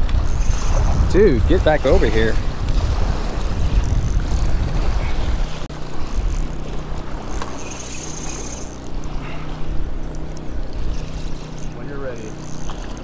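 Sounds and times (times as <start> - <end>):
wind rumble on microphone: 0.0 - 7.4
small engine humming: 5.7 - 13.0.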